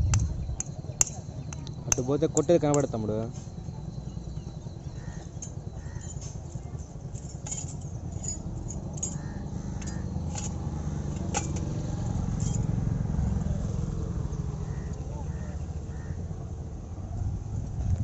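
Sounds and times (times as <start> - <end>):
steady low rumble: 0.0 - 2.1, 16.5 - 18.0
light metallic clinks: 0.1 - 13.0.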